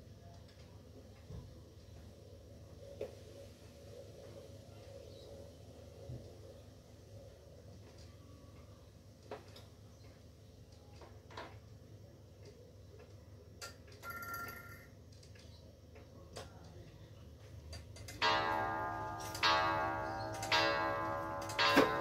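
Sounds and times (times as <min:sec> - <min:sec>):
clock striking: 0:18.0 - 0:22.0.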